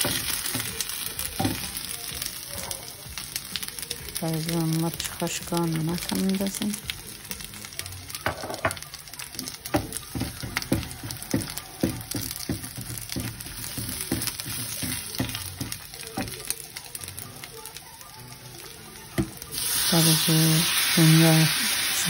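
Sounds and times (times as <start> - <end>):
light sizzle: 0.0 - 22.0
wooden spatula scraping a pan: 9.4 - 16.4.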